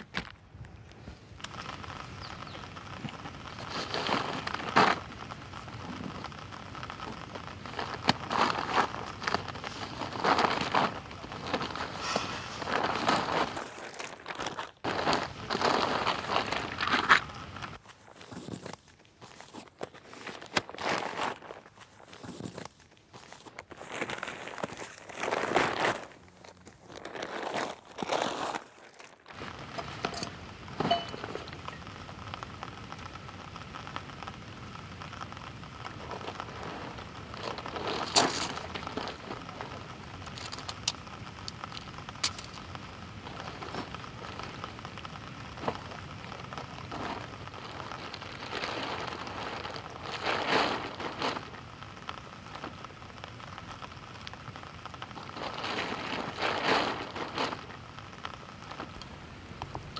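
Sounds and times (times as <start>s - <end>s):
steady outdoor hiss: 0.0s - 59.9s
backpack and tent fabric rustling: 7.1s - 17.2s, 46.6s - 51.8s, 55.1s - 57.9s.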